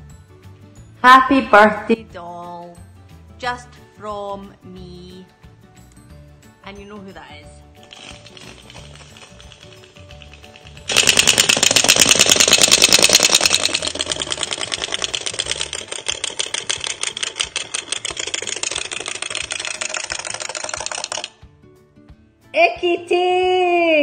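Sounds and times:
wind-up toy teeth clacking: 7.8 - 21.4.

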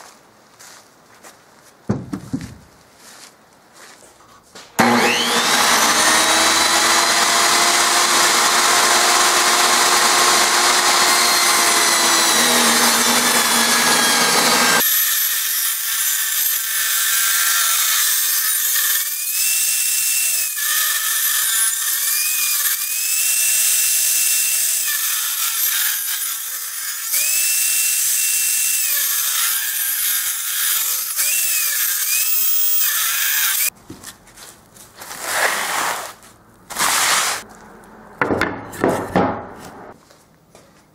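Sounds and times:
table saw cutting a log: 4.8 - 33.7, 36.7 - 37.4.

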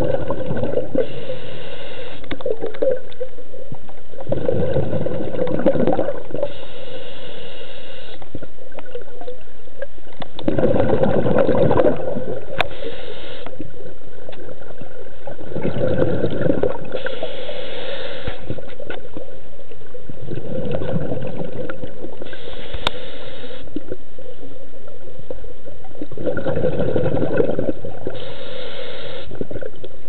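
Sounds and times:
exhaled bubbles gurgling: 0.0 - 7.0, 8.2 - 30.0
regulator inhale hiss: 0.9 - 2.4, 6.4 - 8.4, 12.5 - 13.7, 16.9 - 18.7, 22.2 - 23.8, 28.0 - 29.4.

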